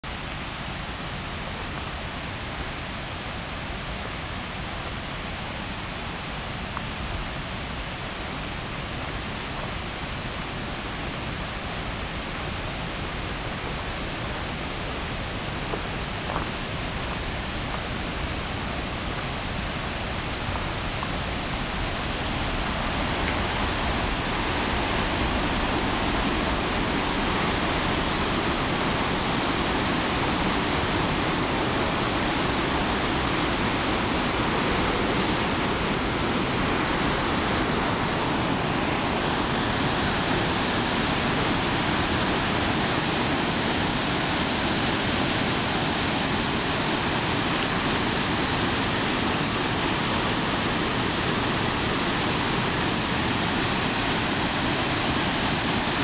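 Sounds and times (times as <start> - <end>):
waterfall rushing: 0.1 - 56.0.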